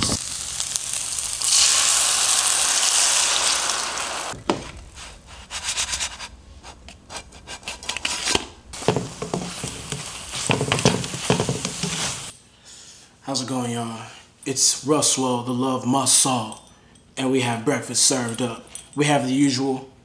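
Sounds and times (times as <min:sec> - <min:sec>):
egg sizzling in hot pan: 0:00.0 - 0:04.4, 0:08.8 - 0:12.3
spatula scraping and clicking on pan: 0:07.6 - 0:12.3.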